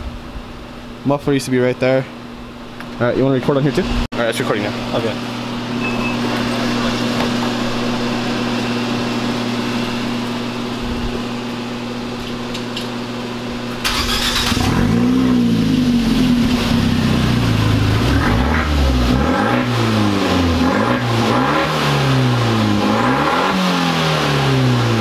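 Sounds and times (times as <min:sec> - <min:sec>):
steady hum: 0:00.0 - 0:20.7
car engine starting and revving: 0:13.8 - 0:25.0.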